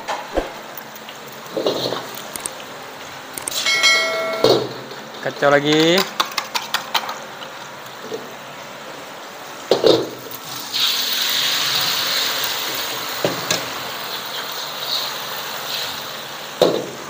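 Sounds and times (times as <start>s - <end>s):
egg sizzling in a wok: 6.2s - 17.0s.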